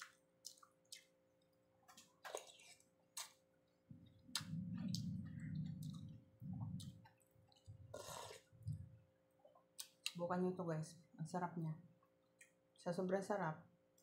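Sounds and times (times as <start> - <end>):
muffled chewing: 0.0 - 10.2, 11.9 - 12.8
wet mouth clicks and smacks: 4.3 - 7.6, 9.5 - 10.2.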